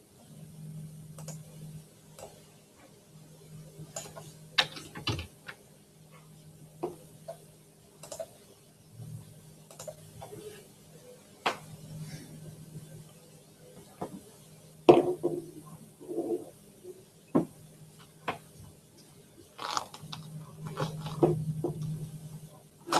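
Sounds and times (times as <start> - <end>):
clicks and knocks at desk: 4.0 - 5.6
low hum: 19.9 - 22.8.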